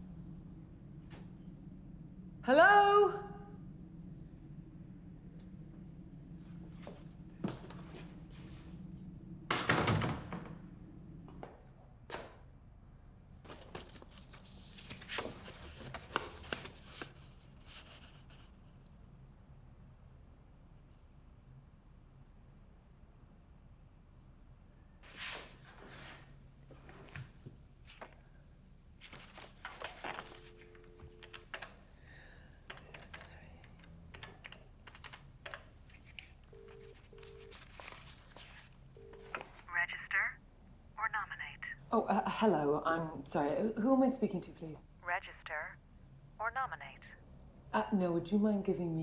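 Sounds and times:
paper rustling and crinkling: 0:13.4 - 0:18.5, 0:29.0 - 0:30.6, 0:35.9 - 0:39.6
dial tone: 0:30.2 - 0:31.5, 0:36.5 - 0:37.6.

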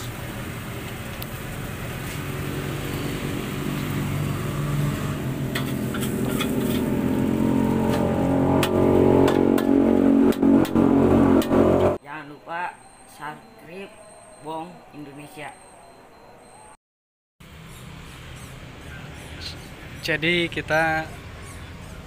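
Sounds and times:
low hum: 0:04.1 - 0:12.0
metal spatula scraping wok: 0:05.4 - 0:07.1.

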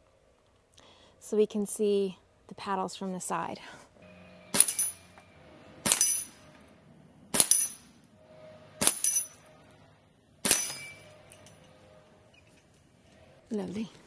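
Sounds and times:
pellets clanging on steel target: 0:04.5 - 0:05.1, 0:05.8 - 0:06.4, 0:07.4 - 0:07.9, 0:08.8 - 0:09.4, 0:10.4 - 0:11.8.

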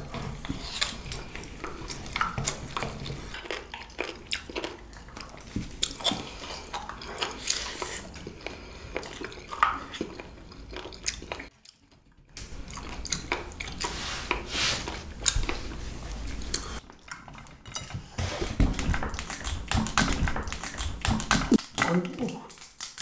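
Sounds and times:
chewing and biting food: 0:00.0 - 0:23.0
cutlery and dishes clinking: 0:17.1 - 0:19.5.

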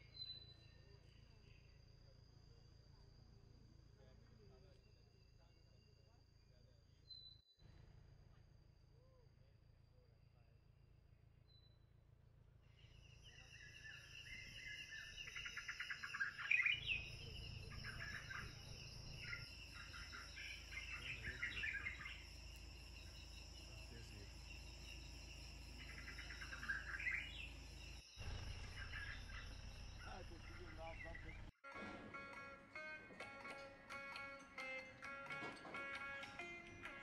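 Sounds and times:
high insect drone: 0:00.1 - 0:07.1, 0:12.7 - 0:31.5
birds chirping and trilling: 0:12.7 - 0:31.5.

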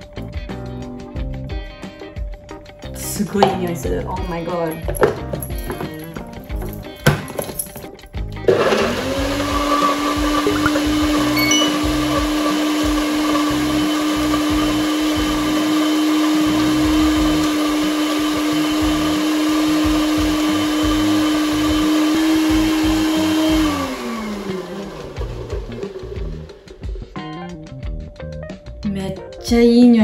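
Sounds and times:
blender motor running: 0:08.5 - 0:26.8.

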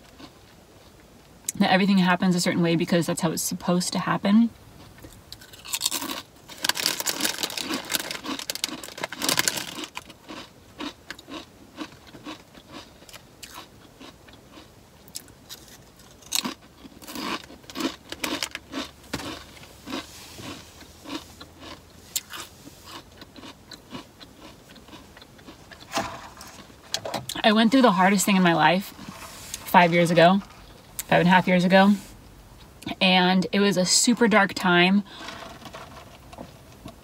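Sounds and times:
chewing: 0:04.8 - 0:26.7
chips crunching: 0:05.0 - 0:26.7.

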